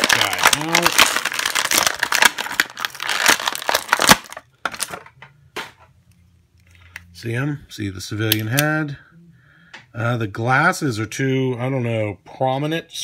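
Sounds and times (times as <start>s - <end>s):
plastic packaging crinkling: 0.0s - 5.2s.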